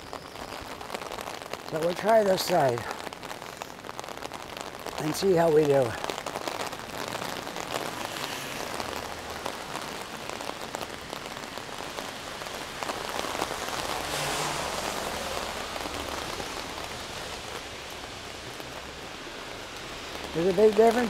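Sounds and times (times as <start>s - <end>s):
rain pattering on an umbrella: 0.0s - 21.0s.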